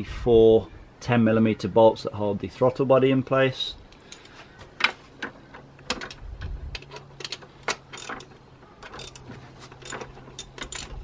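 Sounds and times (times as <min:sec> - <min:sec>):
socket ratchet clicking: 0:06.8 - 0:08.3, 0:09.0 - 0:11.0.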